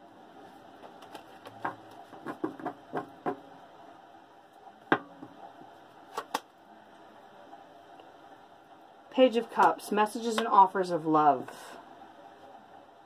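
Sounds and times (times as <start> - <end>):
cards being shuffled: 0.8 - 2.4, 6.1 - 6.5
card snaps and taps: 6.1 - 6.5.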